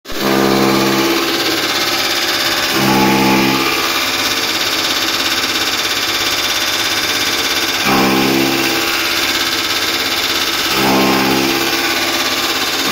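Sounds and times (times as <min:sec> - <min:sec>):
held pitched tones: 0:00.1 - 0:05.6
chaff cutter chopping straw: 0:00.1 - 0:12.9.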